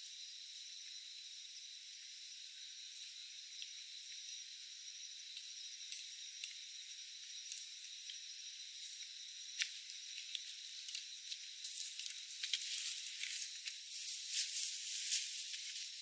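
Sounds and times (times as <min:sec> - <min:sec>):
footsteps through tall grass: 0:12.6 - 0:16.0.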